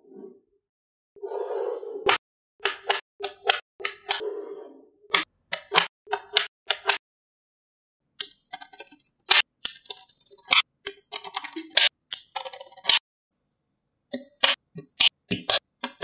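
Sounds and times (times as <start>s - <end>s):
magnetic balls clicking together: 8.2s - 13.0s, 14.1s - 16.0s.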